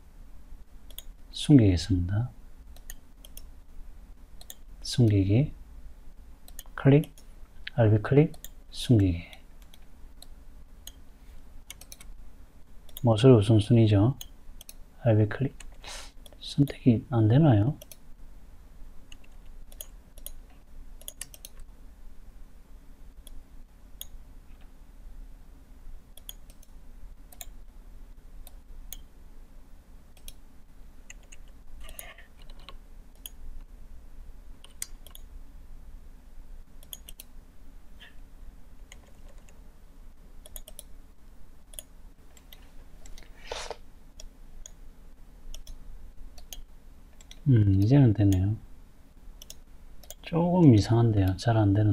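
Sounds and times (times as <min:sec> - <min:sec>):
low steady hum: 0:00.0 - 0:51.9
computer mouse clicks: 0:00.9 - 0:01.2, 0:02.7 - 0:03.5, 0:04.4 - 0:05.2, 0:06.4 - 0:07.3, 0:09.3 - 0:11.0, 0:11.7 - 0:12.2, 0:12.8 - 0:13.1, 0:14.2 - 0:14.8, 0:17.8 - 0:18.0, 0:19.1 - 0:21.7, 0:26.2 - 0:27.6, 0:30.2 - 0:30.4, 0:31.1 - 0:33.4, 0:34.6 - 0:35.3, 0:36.8 - 0:37.3, 0:38.9 - 0:39.6, 0:40.4 - 0:40.9, 0:41.7 - 0:43.3, 0:45.5 - 0:48.5, 0:49.4 - 0:50.3.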